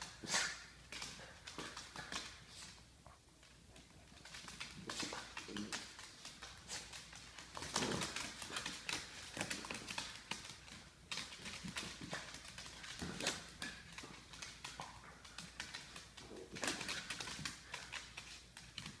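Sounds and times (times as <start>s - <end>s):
dog claws scrabbling on wood floor: 0.0s - 19.0s.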